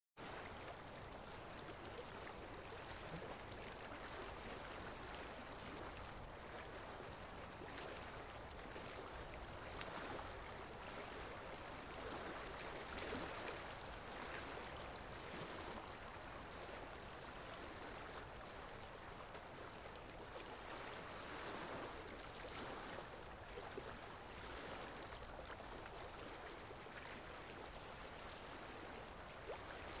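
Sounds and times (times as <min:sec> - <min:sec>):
flowing water rushing: 0:00.2 - 0:30.0.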